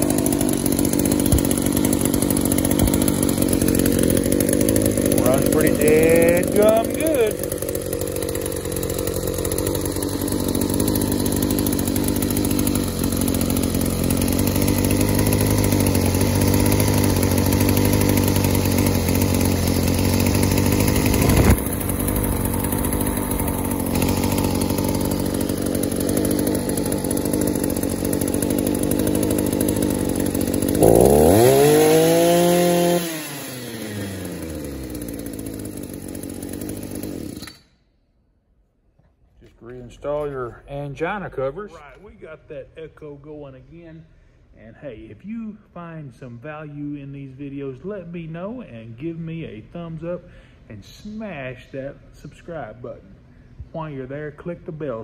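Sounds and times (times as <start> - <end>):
string trimmer engine running: 0.0 - 37.8.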